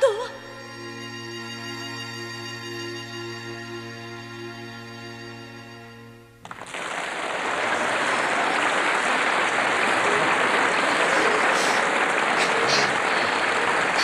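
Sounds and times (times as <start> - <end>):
audience applauding: 6.4 - 14.0.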